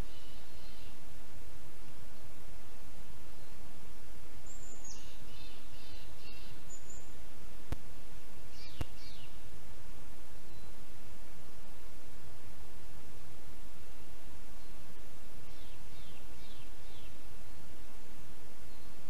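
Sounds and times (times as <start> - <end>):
songbird calling: 0.0 - 1.1, 4.4 - 7.3, 8.4 - 9.5, 10.3 - 10.9, 14.0 - 17.8, 18.6 - 19.0
outdoor background hiss: 0.0 - 19.0.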